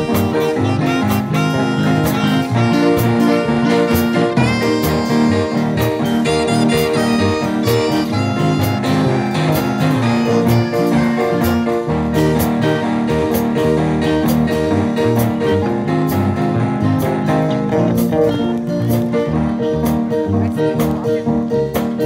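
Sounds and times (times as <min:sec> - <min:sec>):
saxophone solo: 0:00.0 - 0:13.7
electric bass solo: 0:00.0 - 0:22.0
live ska band playing: 0:00.0 - 0:22.0.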